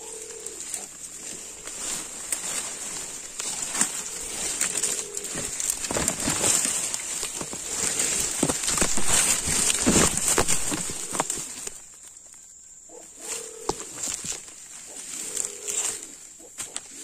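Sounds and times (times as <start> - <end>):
low bird coo: 0.0 - 11.8, 12.8 - 17.0
forest insects droning: 0.0 - 17.0
leaves and twigs rustling: 0.0 - 17.0.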